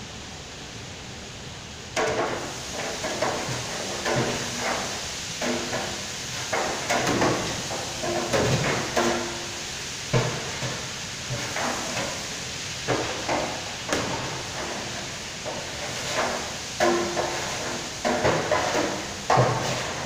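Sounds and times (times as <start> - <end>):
extractor hood running: 2.0 - 20.0
gas burners rushing: 2.0 - 20.0
paddle clunking against steel pot: 12.9 - 20.0.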